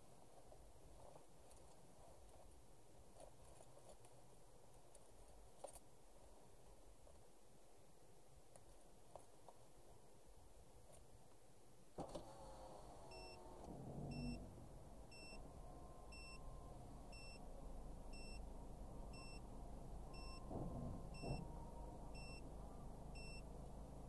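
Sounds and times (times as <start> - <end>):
car idling hum: 12.3 - 24.0.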